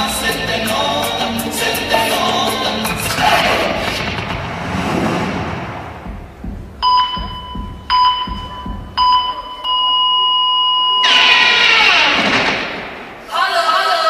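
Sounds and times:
loud dance music track: 0.0s - 9.4s
electronic countdown beeps: 6.5s - 11.1s.

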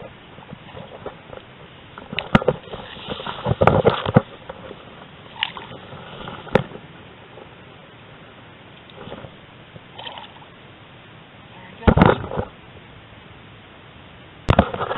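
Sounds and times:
rustling through grass and reeds: 0.0s - 10.5s
light hiss: 0.0s - 14.9s.

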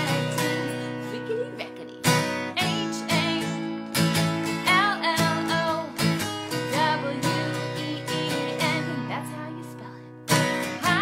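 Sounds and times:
acoustic guitar strumming: 0.0s - 11.0s
woman singing: 0.0s - 11.0s.

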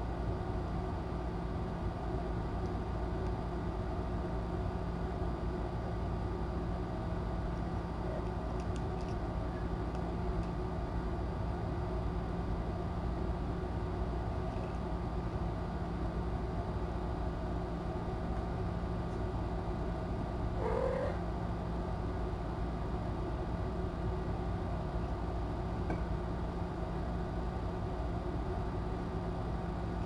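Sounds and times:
low room hum: 0.0s - 30.0s
cat meowing: 20.6s - 21.2s.

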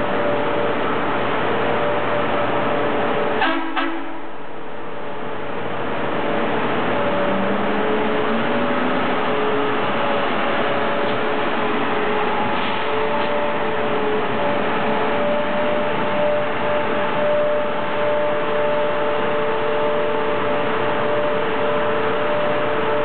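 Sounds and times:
rail machine running: 0.0s - 23.0s
ringing whine: 6.9s - 23.0s.

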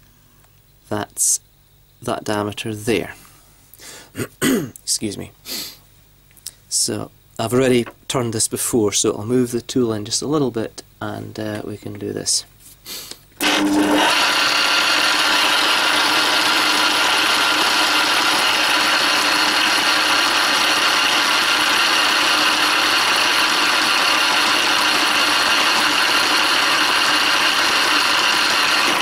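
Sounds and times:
lathe gear whine: 13.4s - 29.0s
metal lathe running: 13.4s - 29.0s.

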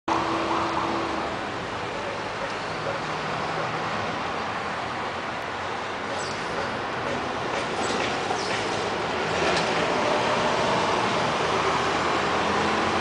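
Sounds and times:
city traffic noise: 0.0s - 13.0s.

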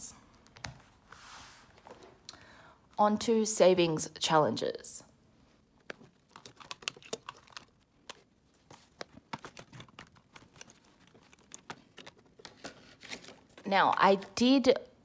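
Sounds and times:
paper banknotes crinkling: 5.8s - 13.7s.

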